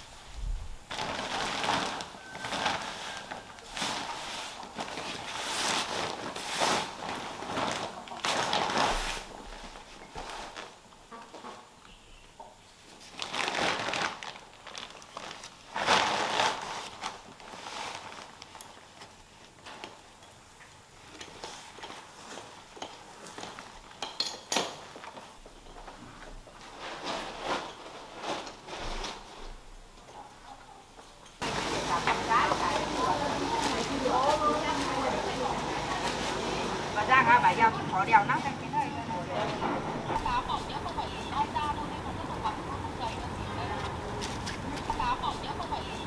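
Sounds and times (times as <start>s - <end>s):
corn husks rustling: 0.0s - 12.2s, 12.8s - 20.2s, 24.8s - 30.0s, 31.4s - 46.0s
plastic bag crinkling: 0.8s - 10.9s, 12.9s - 20.0s, 31.4s - 37.7s.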